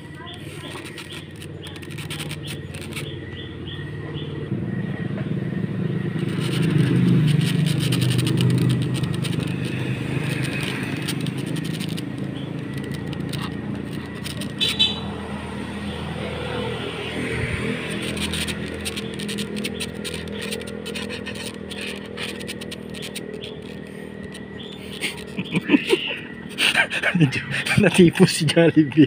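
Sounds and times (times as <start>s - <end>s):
vehicle engine running: 0.0s - 29.0s.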